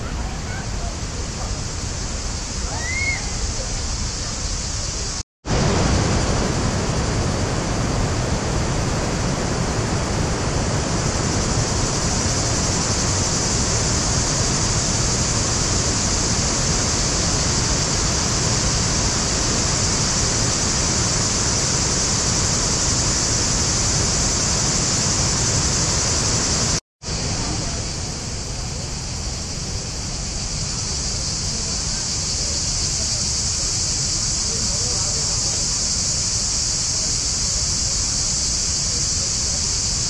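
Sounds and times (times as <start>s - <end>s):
waterfall rushing: 0.0s - 29.7s.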